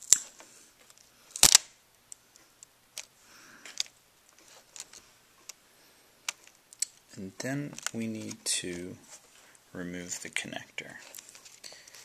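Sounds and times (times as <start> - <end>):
tape peeling off with crackles: 0.9 - 1.7.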